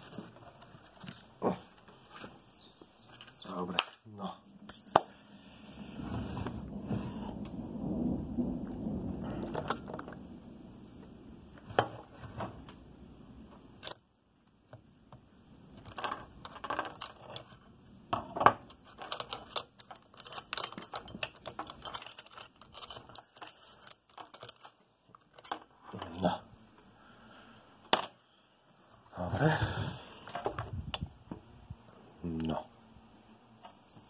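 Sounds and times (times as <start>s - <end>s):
chainsaw chain clinking and rattling: 2.1s - 4.0s, 9.4s - 10.2s, 15.7s - 26.2s
low rubbing handling noise: 5.4s - 7.7s.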